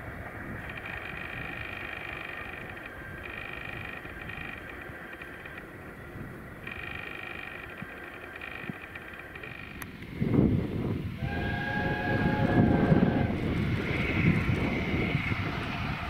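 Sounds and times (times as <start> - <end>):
steam train rumbling past: 9.8 - 16.0
steam whistle: 11.2 - 13.4.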